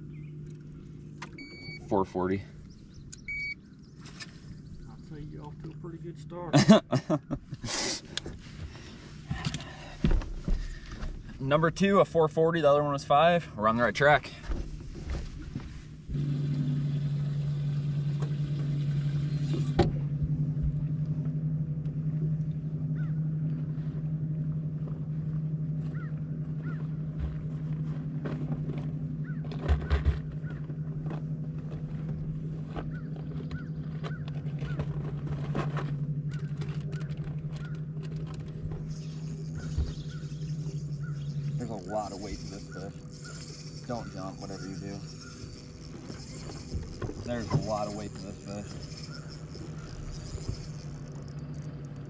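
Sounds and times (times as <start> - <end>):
electric motor humming: 15.3 - 26.8, 30.4 - 52.0
sharp knocks on boat: 26.7 - 38.9.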